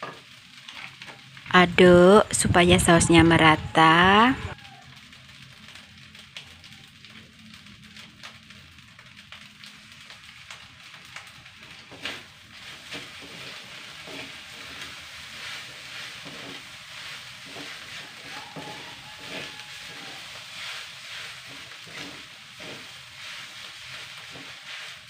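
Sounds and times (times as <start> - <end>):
rice sizzling in a wok: 0.0 - 25.0
spatula scraping a pan: 11.7 - 25.0.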